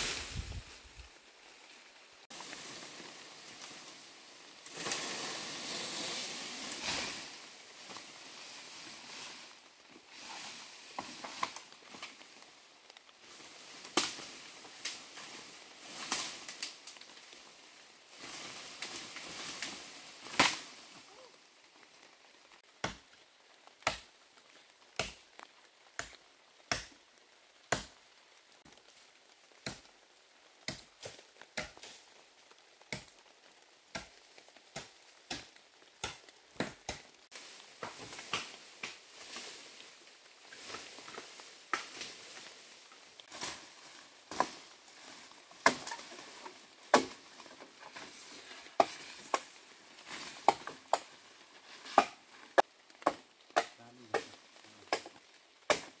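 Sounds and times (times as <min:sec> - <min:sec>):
leaves rustling: 0:00.0 - 0:56.0
machete chopping bamboo: 0:22.8 - 0:23.0, 0:23.8 - 0:24.1, 0:25.0 - 0:25.2, 0:26.0 - 0:26.9, 0:27.7 - 0:28.0, 0:30.7 - 0:31.9, 0:34.8 - 0:37.0, 0:45.6 - 0:46.2, 0:46.9 - 0:47.2, 0:51.9 - 0:52.2, 0:53.0 - 0:56.0.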